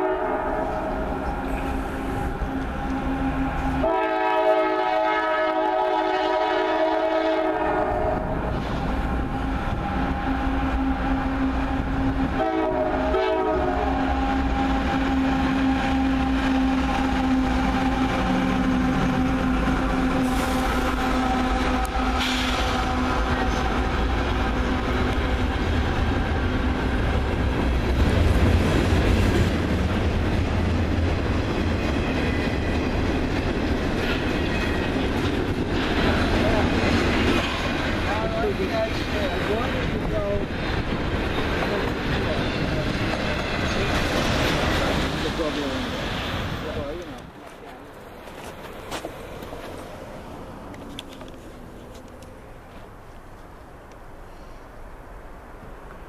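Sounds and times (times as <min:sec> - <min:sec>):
train horn blasts: 0:00.0 - 0:14.8, 0:15.6 - 0:23.9.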